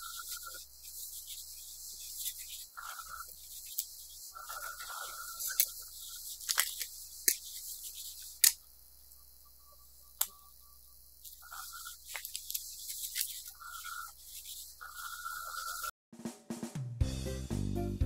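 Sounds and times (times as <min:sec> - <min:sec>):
birds chirping outside: 0:00.0 - 0:15.9.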